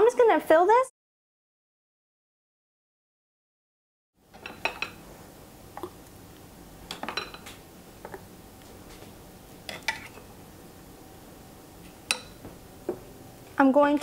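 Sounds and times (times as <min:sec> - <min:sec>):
metal utensil clinking against bowl: 0:12.1 - 0:12.4.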